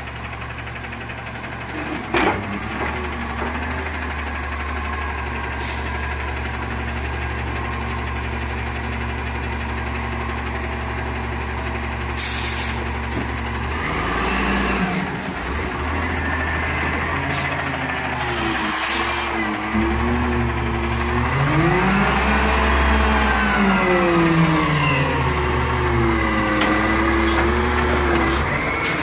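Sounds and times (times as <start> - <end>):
truck engine running: 0.0 - 29.0.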